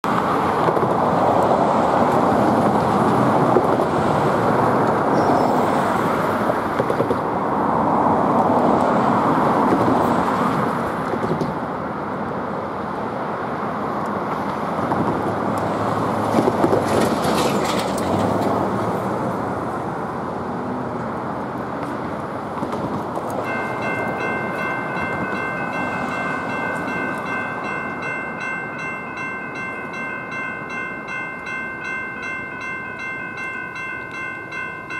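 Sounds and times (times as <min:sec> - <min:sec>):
road traffic passing: 0:00.0 - 0:34.9
railroad crossing warning bell: 0:05.1 - 0:06.0, 0:23.3 - 0:34.9.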